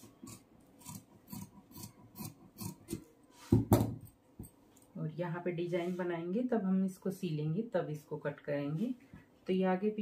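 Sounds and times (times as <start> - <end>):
scissors snipping fabric: 0.0 - 3.0
scissors knocking on table: 3.5 - 4.5.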